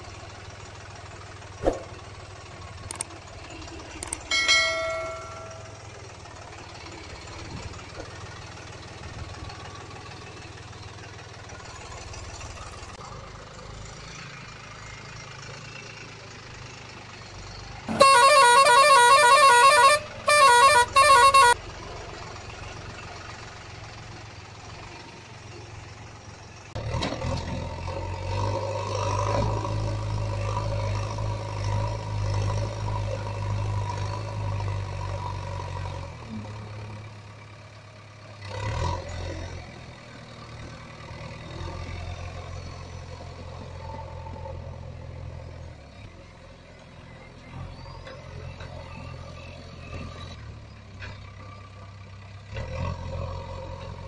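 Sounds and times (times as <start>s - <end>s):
steady engine-like hum: 0.0s - 26.8s
truck horn honking: 4.3s - 5.9s, 17.9s - 21.7s.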